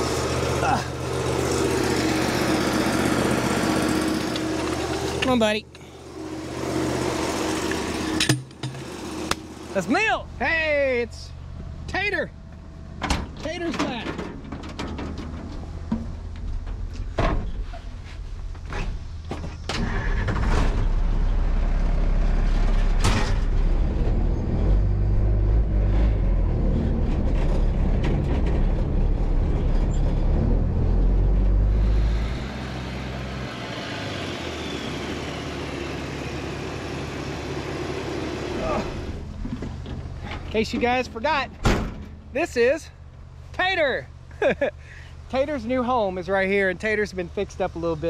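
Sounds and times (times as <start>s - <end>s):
truck engine running: 0.0s - 10.4s, 20.4s - 42.4s
sharp clicks and knocks: 7.7s - 9.5s.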